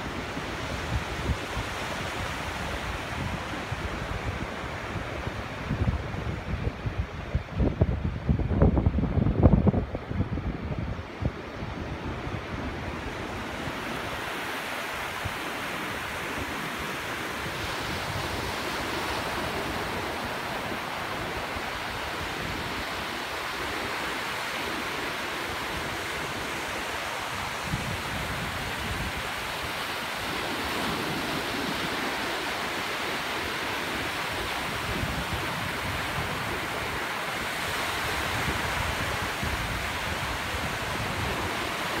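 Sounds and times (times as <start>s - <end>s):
small waves washing on sand: 0.0s - 8.2s, 9.8s - 42.0s.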